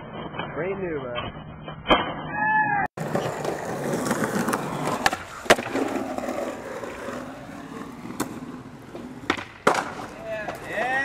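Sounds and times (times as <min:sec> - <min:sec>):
skateboard wheels rolling on concrete: 0:02.3 - 0:11.0
skateboard clacking on ground: 0:03.0 - 0:11.0.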